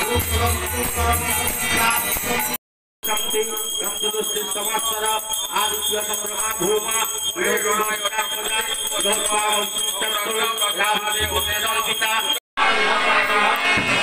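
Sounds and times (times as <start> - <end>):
handheld bell ringing: 0.0 - 12.5
voices chanting: 10.2 - 14.0.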